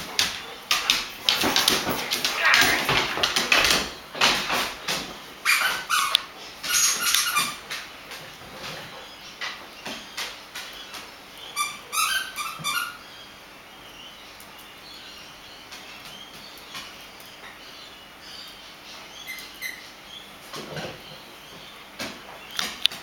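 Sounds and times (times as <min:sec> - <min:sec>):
squeaky toy squeaking: 0:05.5 - 0:07.6, 0:11.6 - 0:13.0.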